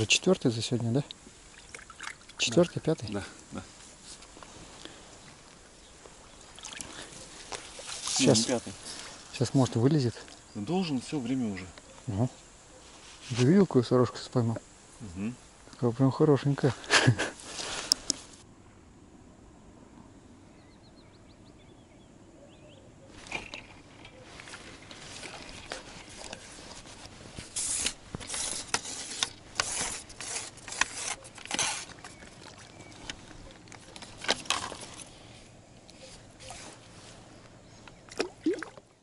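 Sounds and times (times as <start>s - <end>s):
fishing rod rustling and scraping: 2.4s - 10.3s, 12.8s - 13.7s, 16.7s - 18.4s, 23.1s - 38.1s
faint bird chirps: 10.3s - 13.0s, 20.2s - 24.5s, 35.9s - 38.1s.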